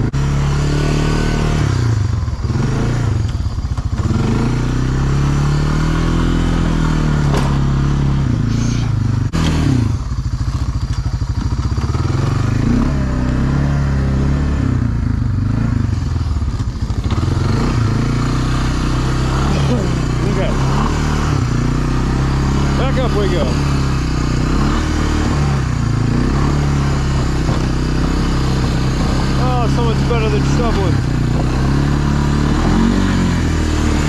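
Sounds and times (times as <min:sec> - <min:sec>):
engine revving: 0:00.0 - 0:34.0
sharp knocks: 0:07.2 - 0:07.7.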